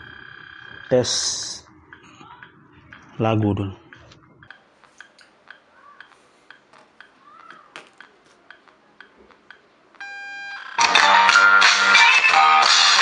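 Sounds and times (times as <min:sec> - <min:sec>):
faint clicks: 0:03.9 - 0:10.0
loud music from speaker: 0:10.8 - 0:13.0.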